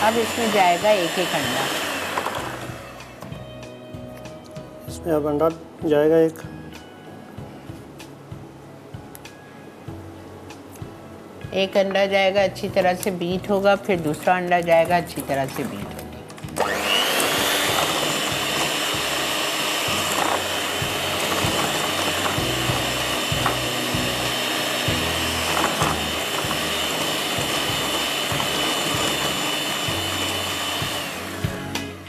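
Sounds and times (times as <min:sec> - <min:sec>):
electric hand mixer whining: 0:00.0 - 0:03.3, 0:14.8 - 0:32.0.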